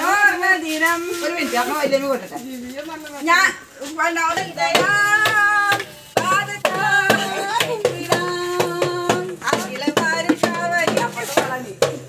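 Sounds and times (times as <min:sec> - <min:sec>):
voices singing festive song: 0:00.0 - 0:12.0
clapped beat: 0:04.8 - 0:12.0.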